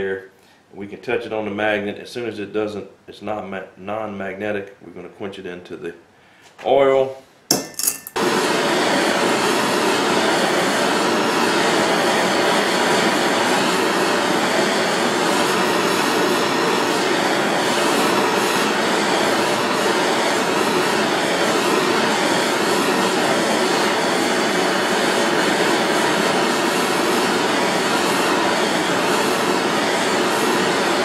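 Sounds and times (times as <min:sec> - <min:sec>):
propane torch hissing: 0:08.2 - 0:31.0.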